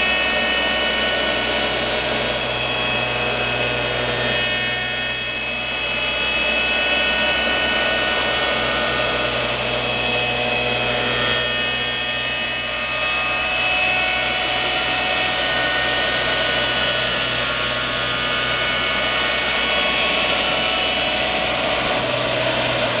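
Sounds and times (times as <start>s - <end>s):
cutter spindle whine: 0.0s - 23.0s
low motor hum: 0.0s - 23.0s.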